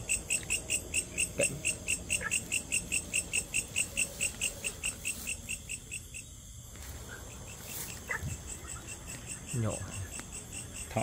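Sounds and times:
cricket chirping: 0:00.0 - 0:11.0.

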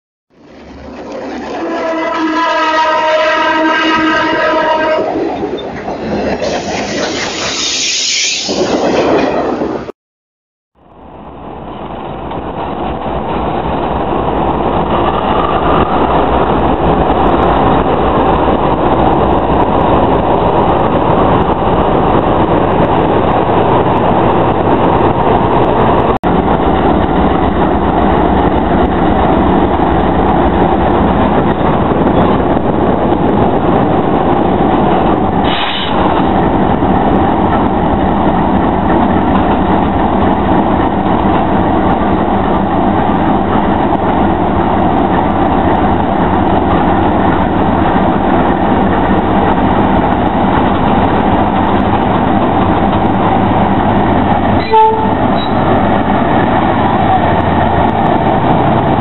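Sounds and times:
diesel locomotive engine drone: 0:00.3 - 0:09.9, 0:10.8 - 0:59.0
high-pitched squeal: 0:06.4 - 0:09.4.

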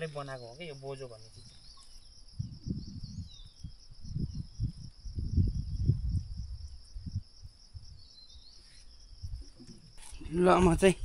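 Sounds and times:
insects chirring: 0:00.0 - 0:11.0
low rumbles and thumps: 0:02.3 - 0:07.9.

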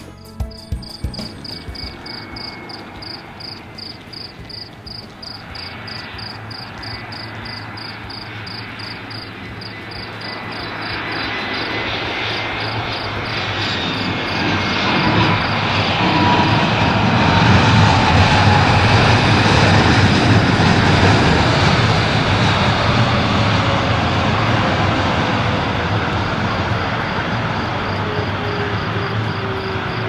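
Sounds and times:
crickets chirping: 0:00.0 - 0:17.8, 0:25.7 - 0:30.0
jet airliner engine: 0:00.9 - 0:30.0.

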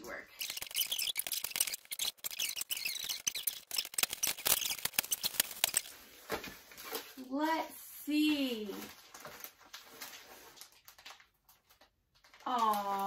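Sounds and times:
packing tape tearing: 0:00.3 - 0:06.0
cardboard rustling: 0:00.3 - 0:07.3.

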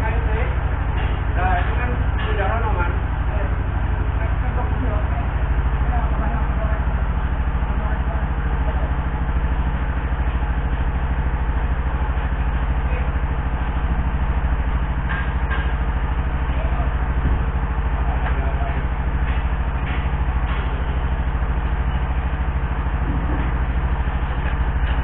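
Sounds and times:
engine idling: 0:00.0 - 0:25.0.

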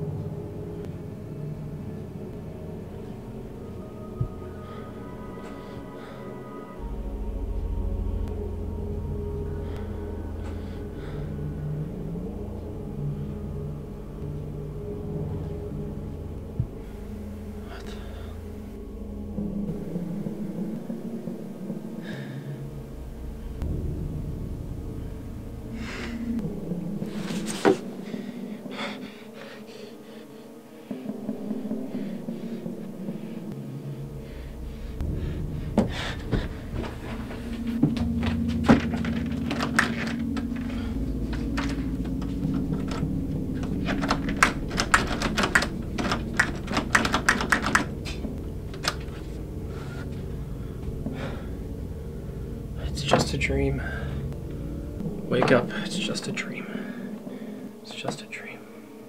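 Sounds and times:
low steady drone: 0:00.0 - 0:59.0
rapid clicks and knocks at door: 0:43.6 - 0:49.0.

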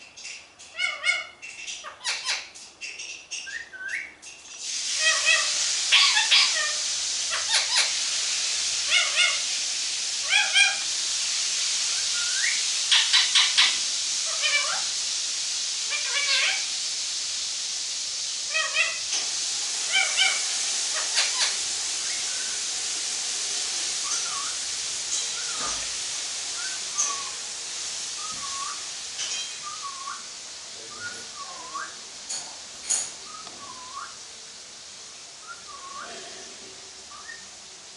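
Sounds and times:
steady hiss: 0:00.0 - 0:37.9
parakeet squeaky calls: 0:00.7 - 0:04.1, 0:05.0 - 0:07.9, 0:15.9 - 0:16.7, 0:18.5 - 0:19.0, 0:19.9 - 0:22.6
parakeet whistling: 0:03.4 - 0:04.1, 0:11.9 - 0:14.9, 0:19.9 - 0:22.6, 0:24.0 - 0:24.6, 0:26.6 - 0:27.4, 0:28.2 - 0:30.3, 0:30.9 - 0:32.0, 0:33.2 - 0:34.2, 0:35.4 - 0:36.1, 0:37.1 - 0:37.4.

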